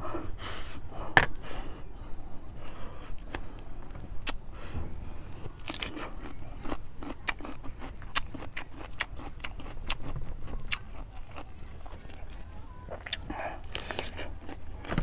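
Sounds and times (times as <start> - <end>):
person crunchy chewing: 3.2 - 4.4, 5.0 - 15.0.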